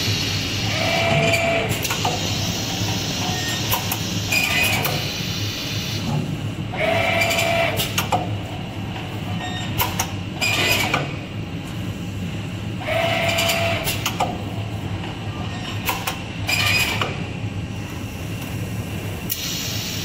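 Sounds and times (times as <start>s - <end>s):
machine hum: 0.0s - 19.3s
machine clicks and clanks: 1.0s - 2.3s, 2.9s - 5.0s, 6.9s - 11.2s, 12.9s - 14.4s, 15.0s - 17.2s.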